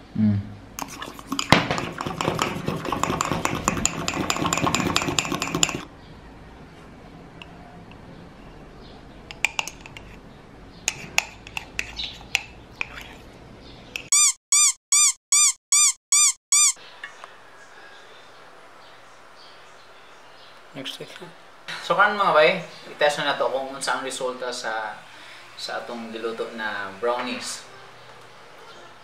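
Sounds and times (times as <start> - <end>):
squeaky chirp sound effect: 14.0 - 16.8.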